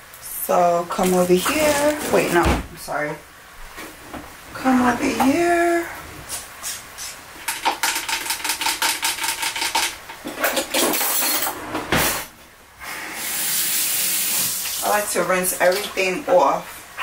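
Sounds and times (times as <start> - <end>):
cutlery clinking in drawer: 9.5 - 12.2.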